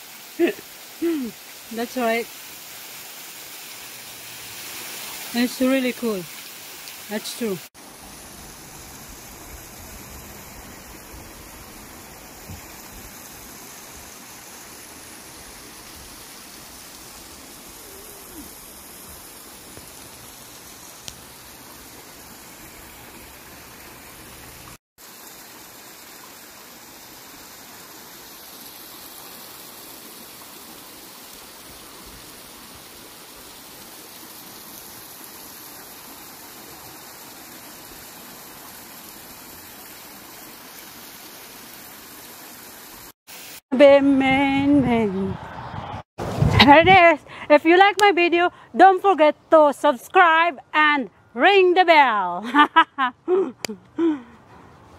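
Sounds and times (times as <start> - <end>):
water pouring over rocks: 0.0 - 43.6.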